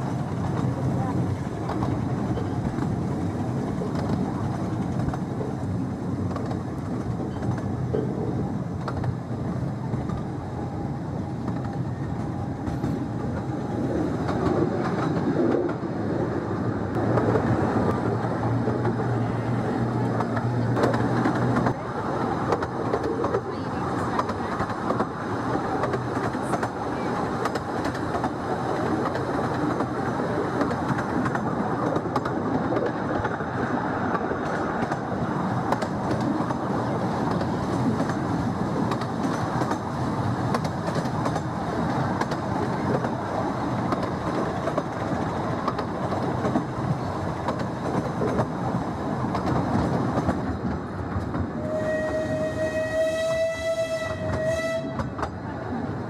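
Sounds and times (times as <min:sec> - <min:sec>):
train carriage clattering over rails: 0:00.0 - 0:10.4, 0:17.0 - 0:55.5
steam whistle: 0:51.6 - 0:55.1.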